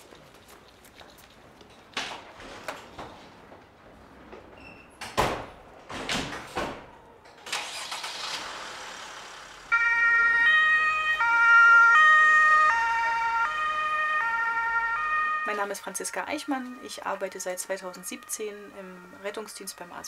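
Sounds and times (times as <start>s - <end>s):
ambulance doors thudding shut: 5.0s - 7.0s
two-tone ambulance siren: 9.7s - 20.0s.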